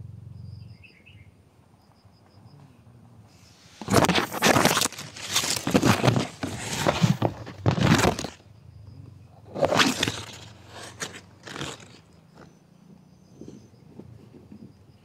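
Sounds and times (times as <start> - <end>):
dry leaves rustling and crunching: 3.8 - 8.4, 9.6 - 12.0.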